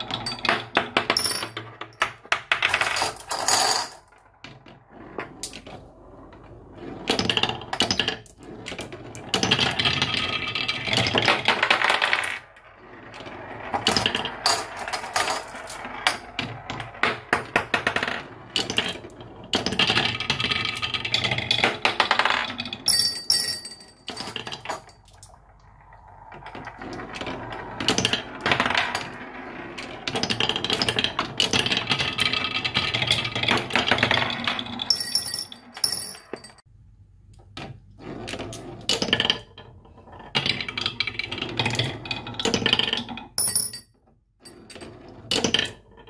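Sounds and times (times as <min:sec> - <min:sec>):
marbles rolling down wooden track: 0:00.0 - 0:36.7, 0:38.0 - 0:43.8, 0:44.5 - 0:46.0
marbles clicking on wooden blocks: 0:07.0 - 0:36.4, 0:38.3 - 0:43.8, 0:45.3 - 0:46.0.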